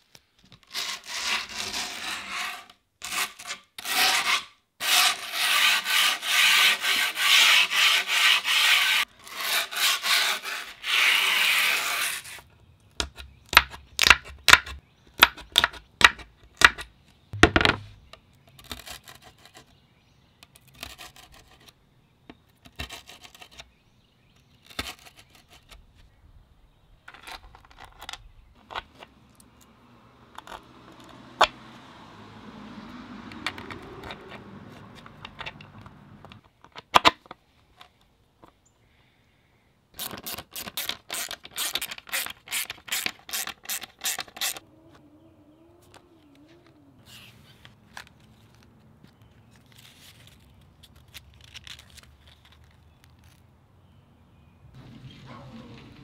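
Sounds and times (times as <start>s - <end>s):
metal bolts knocking into wood: 17.4s - 18.0s
screwdriver scraping grip tape: 40.0s - 44.6s.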